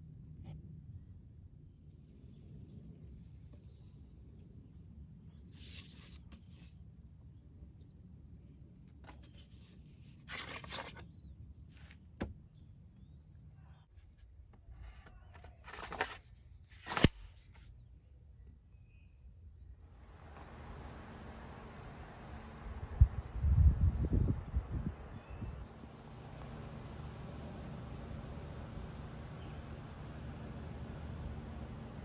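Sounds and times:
blade scraping in wooden cane: 9.2 - 11.1.

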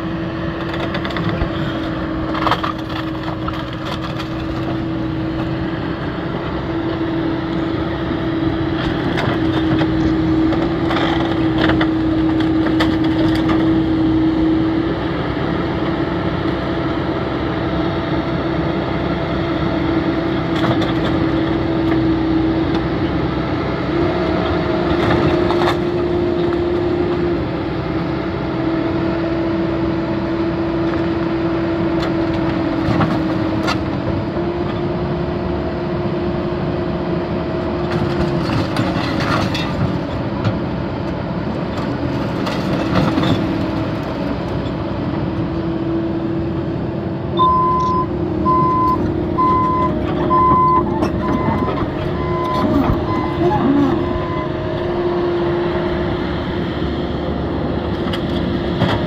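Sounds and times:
excavator engine and hydraulics: 0.0 - 59.0
beeping alarm: 47.4 - 54.6.

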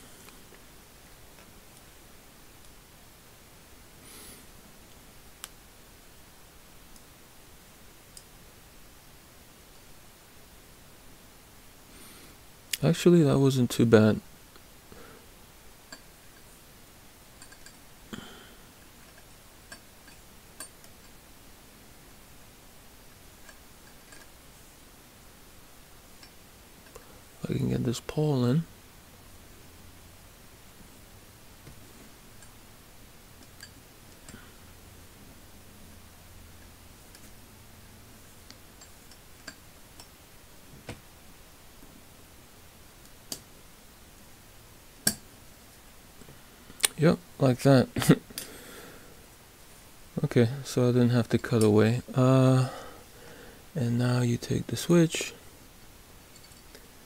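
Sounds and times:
small metallic clicks and taps: 17.4 - 17.8, 45.0 - 45.3.

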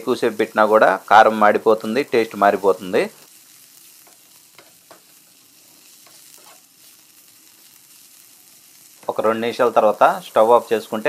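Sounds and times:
greens sizzling in a pan: 0.0 - 11.0
spatula scraping a pan: 3.2 - 8.6.

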